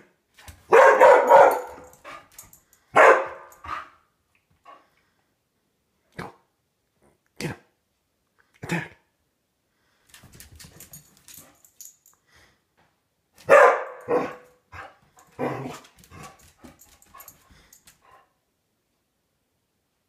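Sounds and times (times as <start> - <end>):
dog barking: 0.7 - 2.3, 2.9 - 4.0, 13.4 - 16.3.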